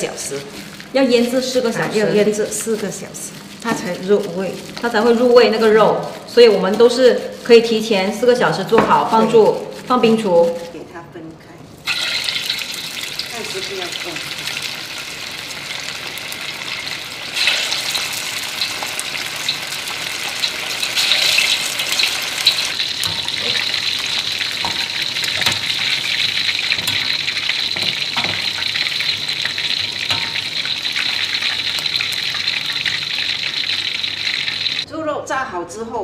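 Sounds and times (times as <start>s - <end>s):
meat deep-frying in oil: 11.8s - 34.9s
ladle knocking on wok: 23.0s - 25.8s, 26.7s - 28.7s, 29.8s - 30.7s.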